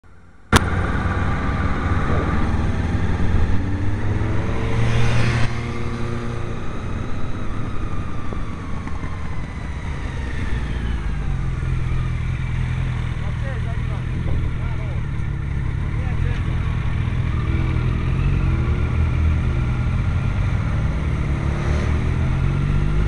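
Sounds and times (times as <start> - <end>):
motorcycle engine: 0.0 - 23.0
wind rush on microphone: 0.6 - 11.9, 14.1 - 14.8.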